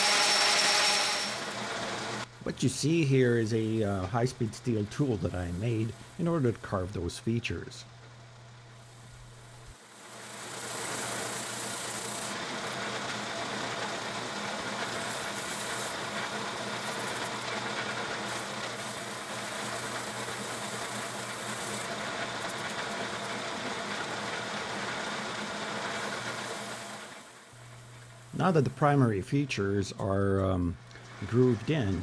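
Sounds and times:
high hiss of cutting tool: 0.0 - 2.2, 10.0 - 12.3, 14.9 - 17.4, 18.2 - 22.6
metal lathe running: 0.0 - 2.3, 10.8 - 27.2.

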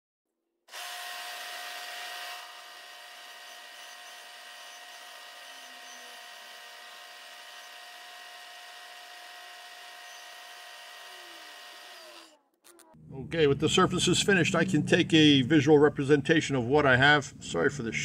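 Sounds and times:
milling machine spindle whining: 0.7 - 12.3.

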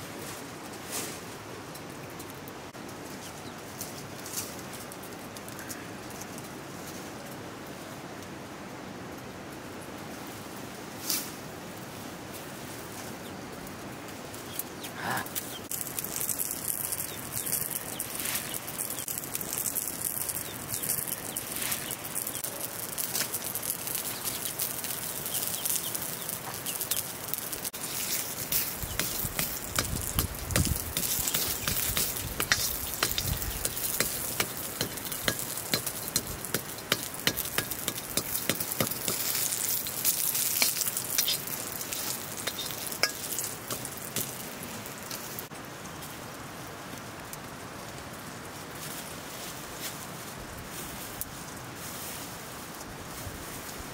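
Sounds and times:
hot fat sizzling in a wok: 15.0 - 45.5.

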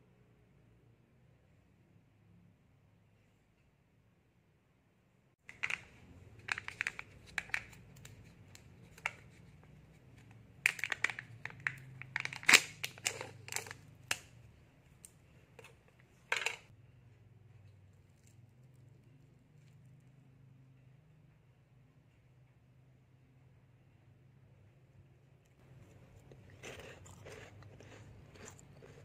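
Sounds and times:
foil lid crinkling and tearing: 5.5 - 9.5, 10.6 - 14.3.

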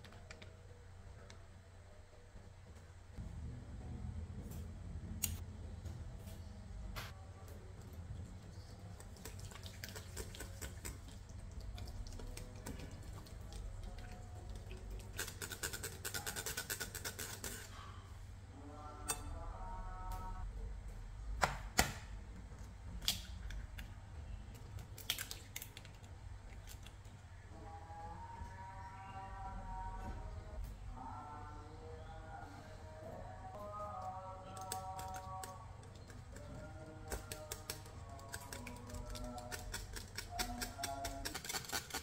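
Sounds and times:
eggs cracking: 24.6 - 27.1.

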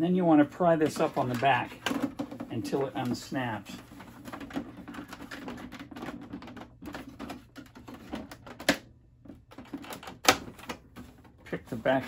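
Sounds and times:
plastic clicking and knocking: 0.8 - 3.2, 4.0 - 11.4.

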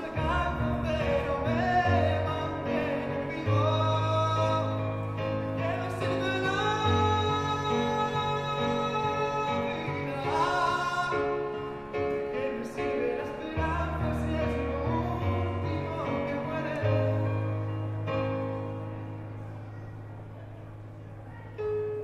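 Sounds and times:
man singing a slow ballad: 0.0 - 18.7
digital piano chords: 0.0 - 22.0.

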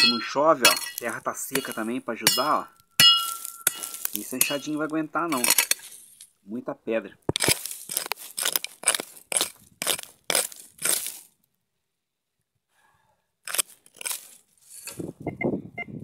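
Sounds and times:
hand hoe chopping stony ground: 0.0 - 6.3, 7.2 - 11.3, 13.4 - 15.1.

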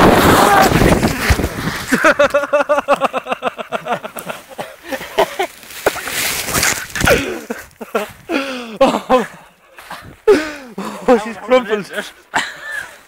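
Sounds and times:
man laughing hard: 1.9 - 9.5.

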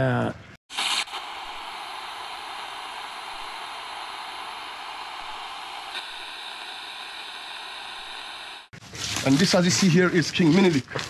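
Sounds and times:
static hiss: 0.7 - 8.7.

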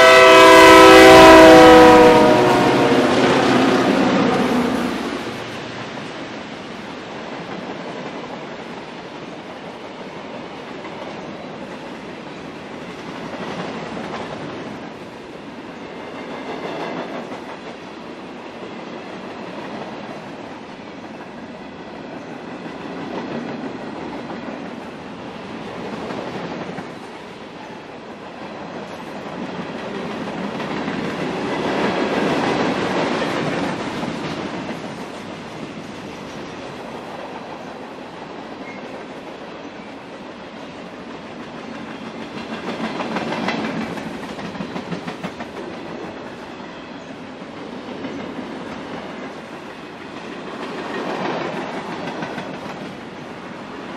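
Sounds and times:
freight train wheels on rails: 0.0 - 53.9.

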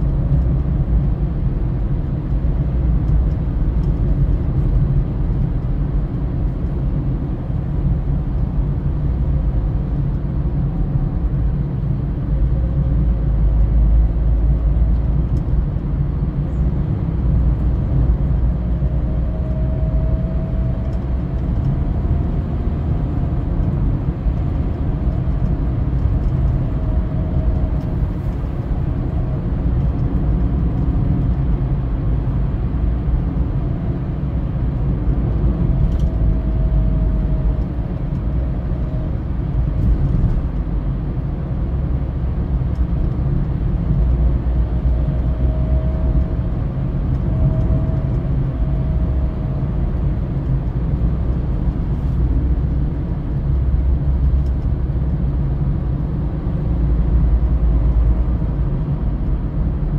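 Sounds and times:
faint engine whine: 0.0 - 59.9
tyres rumbling on road: 0.0 - 59.9.

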